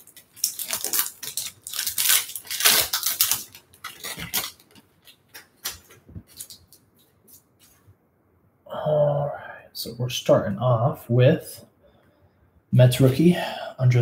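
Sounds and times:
foil wrapper crinkling: 0:00.0 - 0:07.1.

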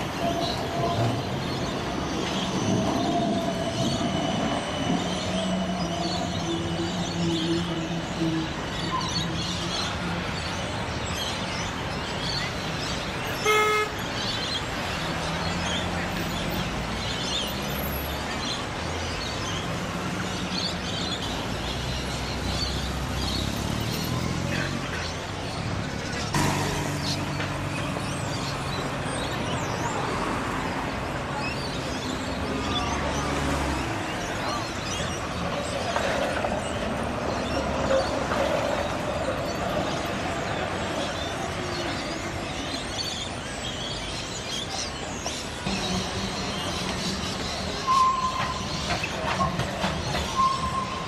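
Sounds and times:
trams and cars passing: 0:00.0 - 0:51.0
vehicle horn toot: 0:13.3 - 0:14.0.

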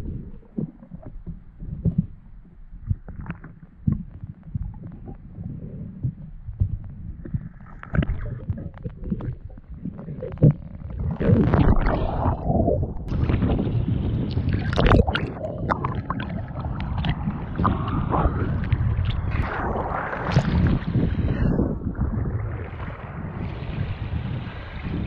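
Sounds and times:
muffled underwater gurgling: 0:00.0 - 0:25.0
wind on microphone: 0:00.0 - 0:25.0
waves lapping and splashing: 0:07.4 - 0:25.0.

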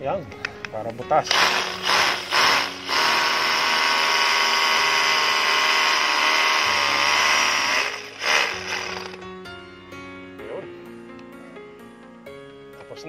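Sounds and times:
hammer drill boring into masonry: 0:01.2 - 0:09.2.

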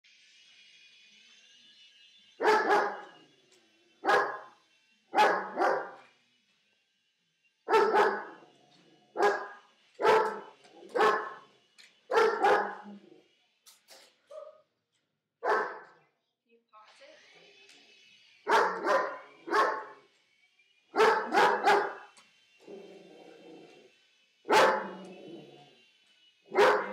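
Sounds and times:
dog barking: 0:02.4 - 0:03.1, 0:04.0 - 0:04.5, 0:05.2 - 0:06.0, 0:07.7 - 0:08.4, 0:09.2 - 0:11.4, 0:12.1 - 0:13.0, 0:15.4 - 0:15.9, 0:18.5 - 0:19.9, 0:21.0 - 0:22.1, 0:24.5 - 0:25.1, 0:26.5 - 0:26.9.

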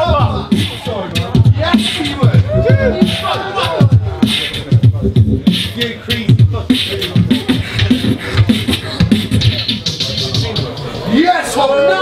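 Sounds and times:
beatboxing into a microphone: 0:00.0 - 0:11.4.

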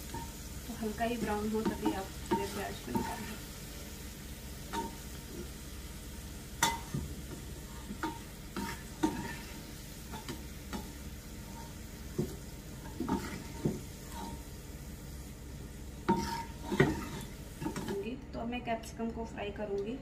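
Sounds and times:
oil sizzling: 0:00.0 - 0:18.0
spatula scraping frying pan: 0:07.6 - 0:14.4, 0:16.0 - 0:17.9.

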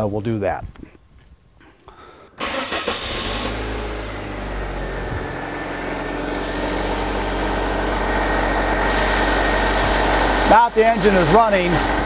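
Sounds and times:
car engine idling: 0:02.4 - 0:12.0.

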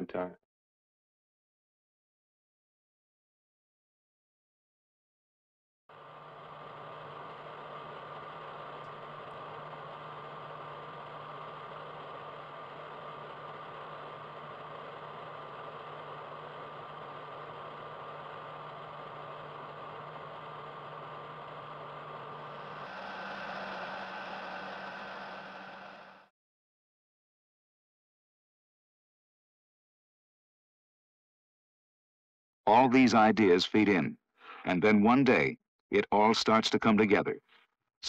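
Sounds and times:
computer cooling fans whirring: 0:05.9 - 0:26.3
low steady drone: 0:05.9 - 0:26.3
thin high whine: 0:06.0 - 0:26.3.

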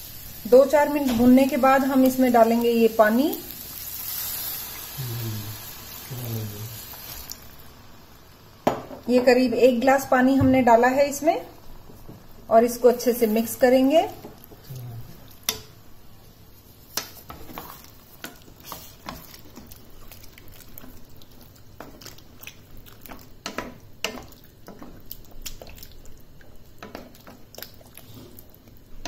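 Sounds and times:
spatula scraping pan: 0:17.0 - 0:19.3.

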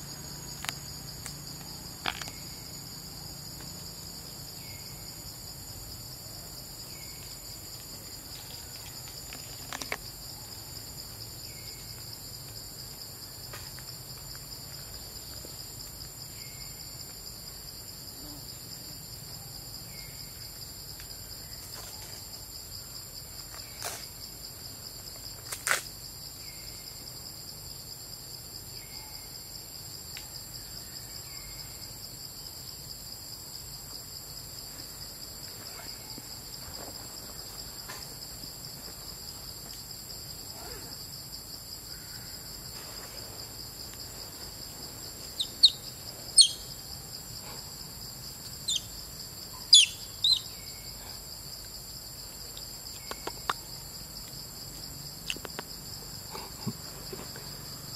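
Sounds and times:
insects buzzing drone: 0:00.0 - 0:57.9
sharp high chirps: 0:46.4 - 0:46.7, 0:49.7 - 0:50.5.

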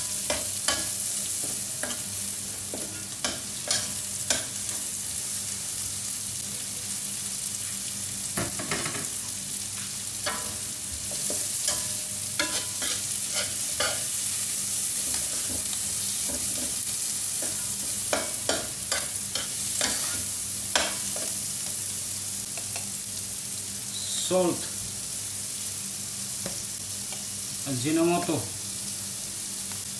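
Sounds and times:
vegetables sizzling in hot oil: 0:00.0 - 0:29.9
metal spoon scraping a pan: 0:10.3 - 0:14.1, 0:17.4 - 0:20.2.

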